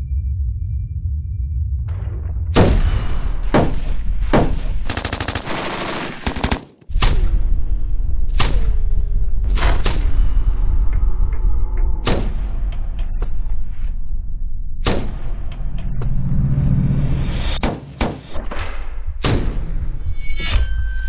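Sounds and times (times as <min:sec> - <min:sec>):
low rumble: 0:00.0 - 0:05.0, 0:06.9 - 0:17.6
machine gun firing: 0:02.6 - 0:06.9.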